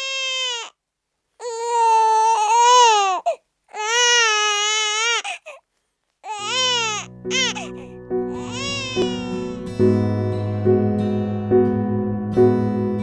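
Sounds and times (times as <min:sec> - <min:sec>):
infant crying: 0:00.0 - 0:00.8, 0:01.4 - 0:05.6, 0:06.2 - 0:09.6
soft music: 0:06.3 - 0:13.0.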